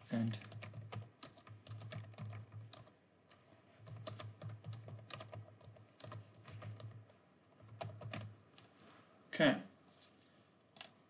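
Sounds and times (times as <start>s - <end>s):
keyboard typing clicks: 0.3s - 8.3s.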